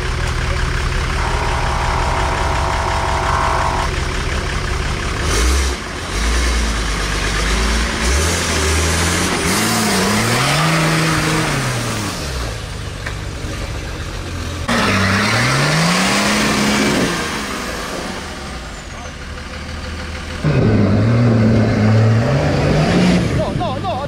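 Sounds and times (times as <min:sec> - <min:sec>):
engine revving: 0:00.9 - 0:12.5, 0:20.4 - 0:23.4.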